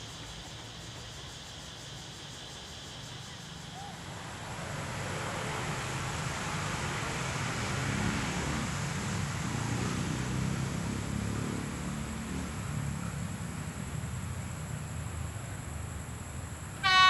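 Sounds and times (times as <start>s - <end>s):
diesel locomotive engine rumble: 13.5s - 17.0s.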